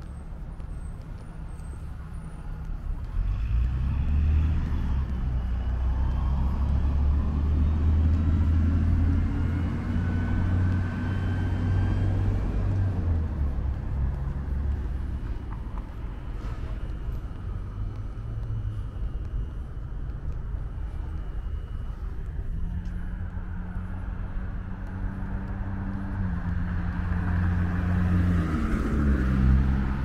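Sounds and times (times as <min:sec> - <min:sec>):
vehicle engine rumble: 0:00.0 - 0:30.0
faint whine: 0:09.3 - 0:24.7.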